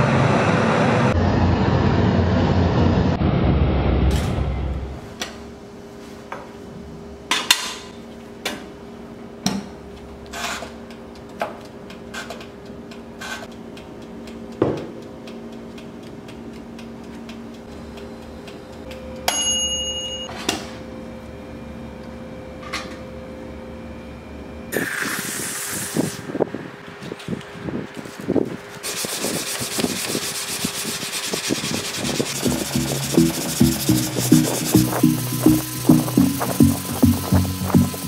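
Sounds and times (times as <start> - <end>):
short metallic ring: 19.3 - 20.4
steady hum: 26.0 - 38.0
sandpaper rubbing on steel: 28.8 - 38.0.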